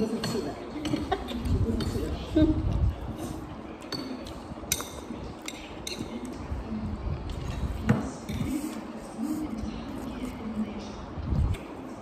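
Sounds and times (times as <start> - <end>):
fork clinking on ceramic bowl: 3.8 - 6.3.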